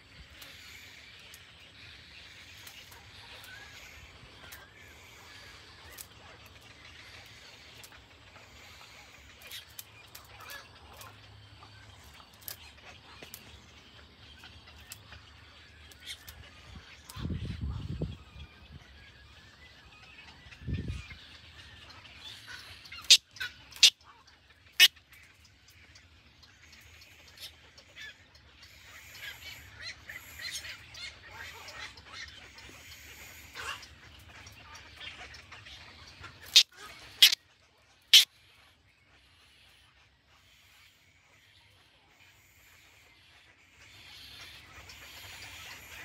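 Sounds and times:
short sharp bird calls: 0:36.4 - 0:37.4.

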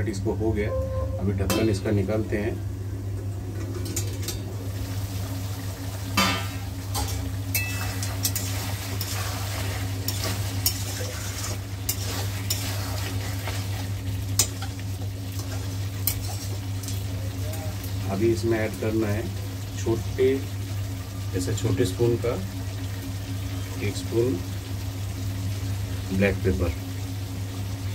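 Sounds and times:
steady low hum: 0:00.0 - 0:27.9
chicken sizzling in a pan: 0:03.7 - 0:27.9
metal spoon scraping a pan: 0:07.0 - 0:14.8, 0:15.4 - 0:17.0.

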